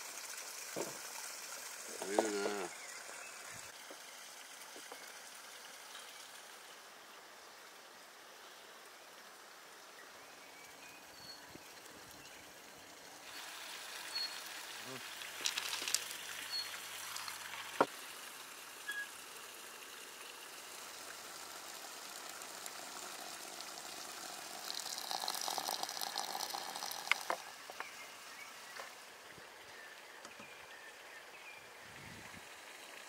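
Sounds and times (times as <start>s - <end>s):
water pouring into teapot: 13.3s - 17.9s, 20.3s - 27.6s
dried rosehips dropping into glass: 15.4s - 16.1s.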